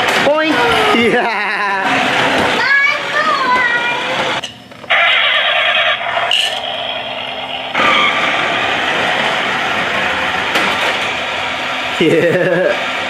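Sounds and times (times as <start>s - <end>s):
toy car engine sound effects: 2.6s - 6.3s.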